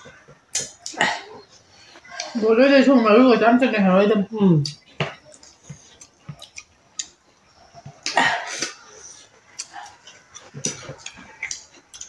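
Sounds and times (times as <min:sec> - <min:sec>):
eating by hand clicks: 0:04.6 - 0:07.2, 0:09.6 - 0:12.0.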